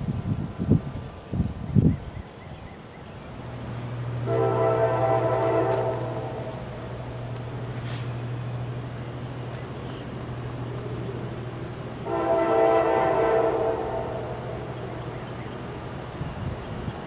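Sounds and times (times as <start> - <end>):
locomotive air horn blast: 4.2 - 7.2, 12.0 - 14.7.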